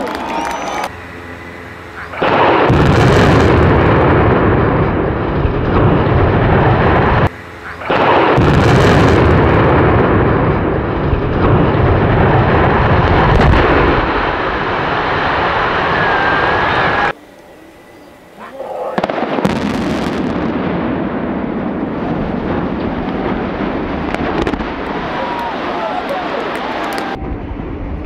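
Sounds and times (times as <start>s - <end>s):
explosive blast: 2.0s - 17.1s, 18.9s - 28.0s
rumble of collapsing structure: 2.2s - 7.3s, 7.9s - 17.1s.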